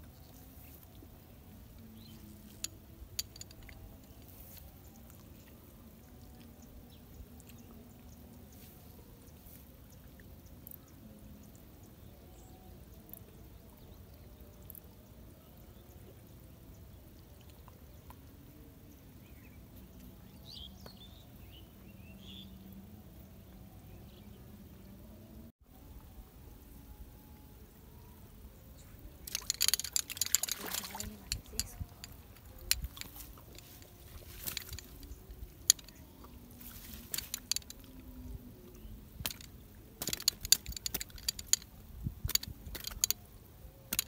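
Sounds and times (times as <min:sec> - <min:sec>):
low steady outdoor background: 0:00.0 - 0:44.0
sharp clicks: 0:39.2 - 0:43.2.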